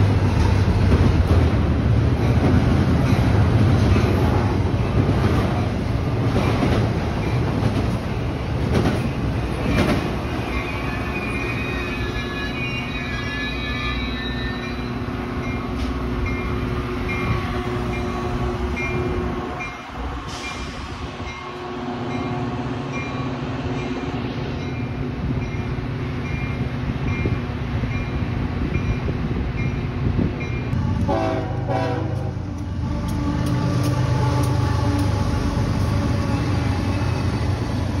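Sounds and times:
train rumble: 0.0 - 38.0
crossing bell dinging: 9.7 - 20.6
train horn: 17.1 - 19.6, 21.3 - 22.7, 30.8 - 37.2.

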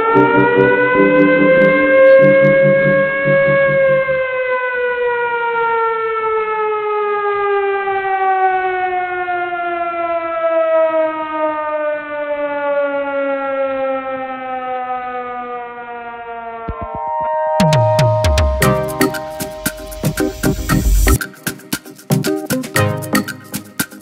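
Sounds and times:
siren winding down: 0.0 - 6.2, 15.1 - 21.2.

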